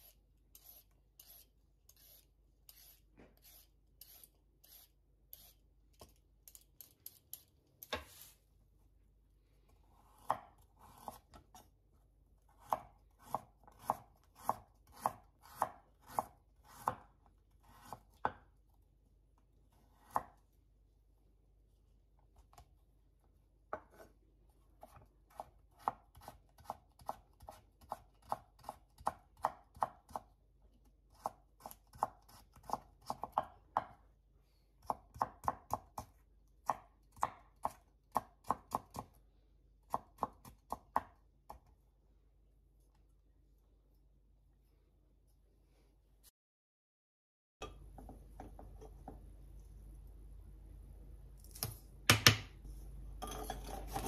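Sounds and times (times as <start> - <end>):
knife cutting carrot on board: 0.0 - 8.3, 9.9 - 11.8, 12.4 - 18.8, 19.7 - 20.4, 24.8 - 34.0.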